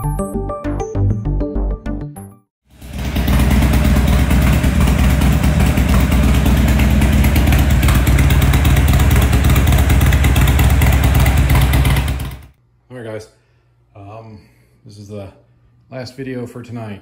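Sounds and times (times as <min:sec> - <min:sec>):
motorcycle engine idling: 0:02.7 - 0:12.6.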